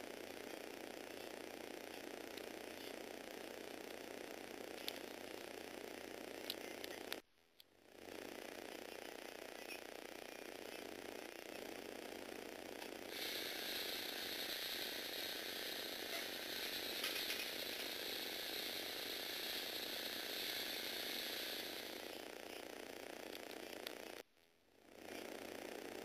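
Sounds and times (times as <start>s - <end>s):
motors and plastic gears whirring: 7.9s - 24.2s.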